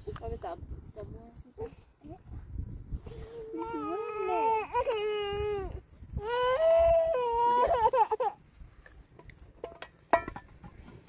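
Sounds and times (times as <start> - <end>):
toddler wailing: 3.6 - 8.4.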